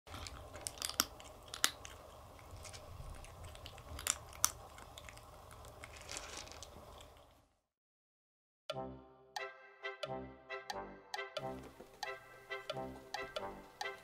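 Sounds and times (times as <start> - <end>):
kitten crunching dry kibble: 0.1 - 7.5.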